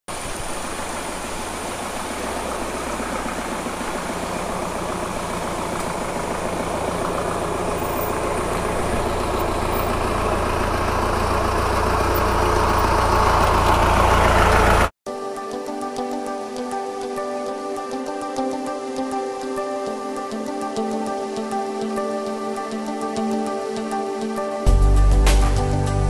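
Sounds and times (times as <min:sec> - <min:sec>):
vehicle engine crawling over rocks: 0:00.1 - 0:14.9.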